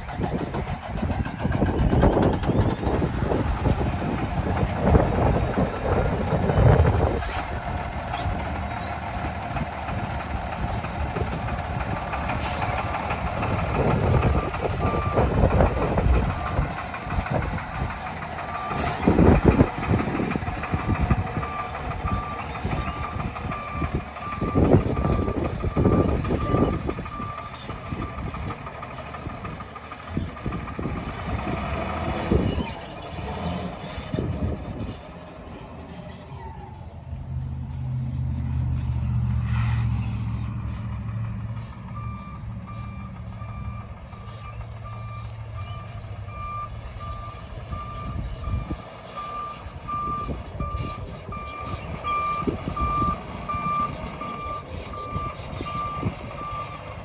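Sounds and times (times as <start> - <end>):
diesel truck engine running: 0.0 - 57.0
reversing alarm beeping: 41.9 - 56.9.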